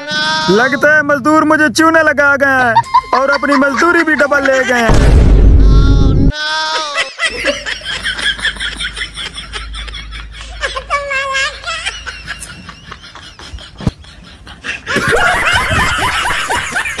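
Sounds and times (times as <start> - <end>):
person laughing: 2.6 - 4.9, 6.6 - 17.0.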